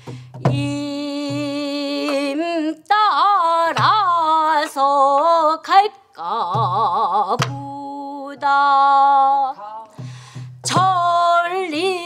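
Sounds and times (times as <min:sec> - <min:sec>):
woman singing long wavering notes: 0:00.5 - 0:10.0.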